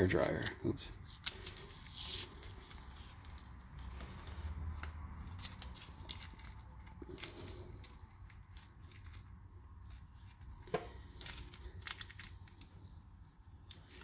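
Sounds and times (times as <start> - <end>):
sticker peeling clicks and crackles: 3.0 - 9.3.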